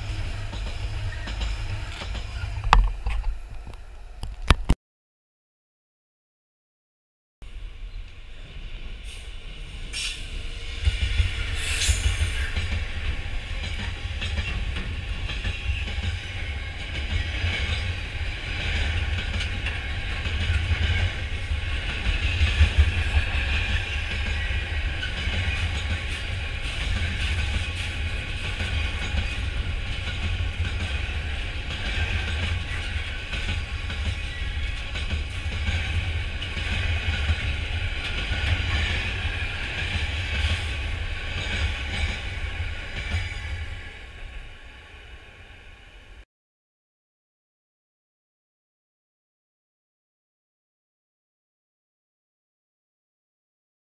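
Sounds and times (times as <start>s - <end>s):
train wheel clatter: 0.0s - 4.6s, 9.0s - 44.4s
freight train rumble: 0.0s - 4.8s, 7.4s - 46.2s.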